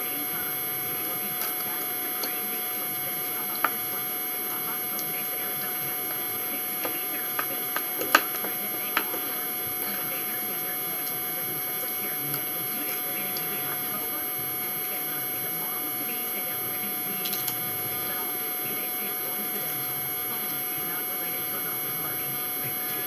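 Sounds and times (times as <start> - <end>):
electrical hum and hiss: 0.0 - 23.0.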